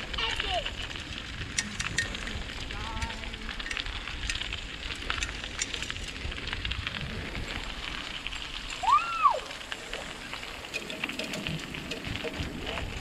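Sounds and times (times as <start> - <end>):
bicycle tyres rolling on rough path: 0.0 - 13.0
wind rumbling on microphone: 0.0 - 13.0.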